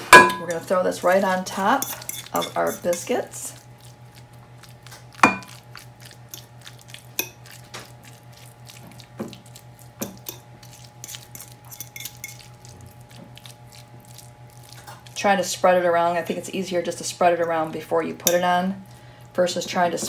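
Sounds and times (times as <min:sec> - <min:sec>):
faint steady hum: 0:00.0 - 0:20.0
glass bowl clinking on glass: 0:00.2 - 0:00.6, 0:05.2 - 0:05.6.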